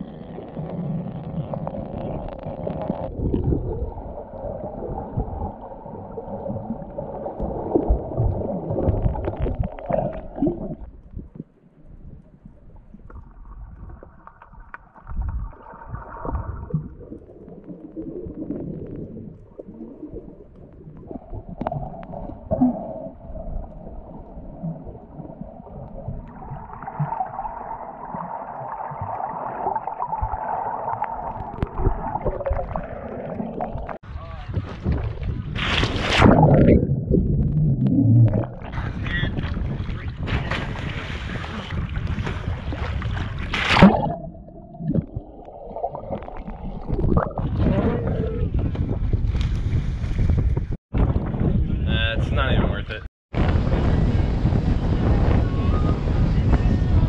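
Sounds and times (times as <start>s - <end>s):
underwater gurgling and bubbles: 0.0s - 51.5s.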